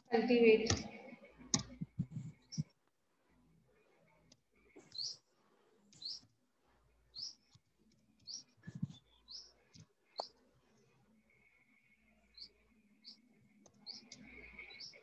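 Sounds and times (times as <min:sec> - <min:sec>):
bird chirping: 0:04.8 - 0:05.2, 0:05.9 - 0:06.2, 0:07.1 - 0:07.5, 0:08.2 - 0:10.4, 0:12.0 - 0:15.0.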